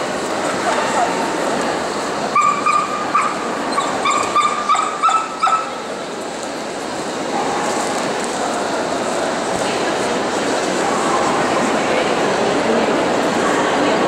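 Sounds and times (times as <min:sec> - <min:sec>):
busy hall background noise: 0:00.0 - 0:14.0
dog yelping: 0:02.4 - 0:05.7.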